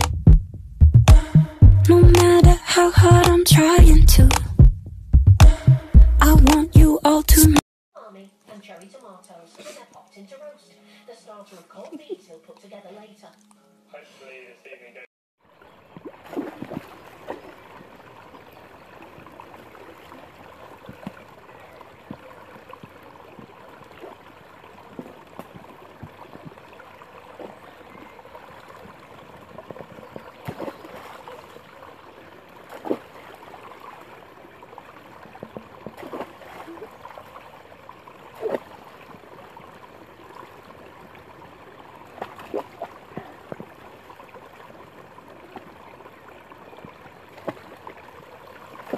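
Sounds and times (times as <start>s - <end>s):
creek water trickling: 8.4s - 10.3s, 15.4s - 48.9s
dog splashing in water: 15.9s - 31.6s, 32.6s - 34.2s, 34.9s - 37.4s, 38.3s - 39.4s, 42.0s - 44.0s.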